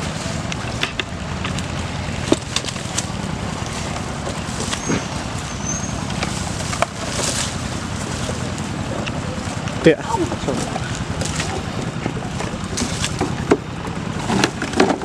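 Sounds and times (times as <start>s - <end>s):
leaves rustling: 0.0s - 15.0s
twigs snapping and knocking: 0.5s - 5.2s, 6.0s - 9.8s, 10.5s - 13.7s.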